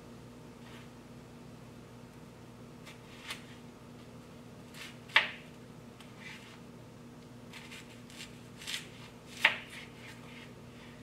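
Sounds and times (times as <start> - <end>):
faint steady hum: 0.0 - 11.0
knife cutting onion: 2.8 - 3.6, 4.7 - 5.5, 7.5 - 10.5.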